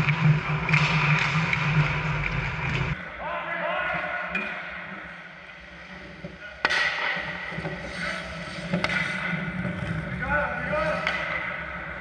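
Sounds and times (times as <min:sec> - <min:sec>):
hockey puck crack: 0:00.0 - 0:03.0, 0:06.0 - 0:12.0.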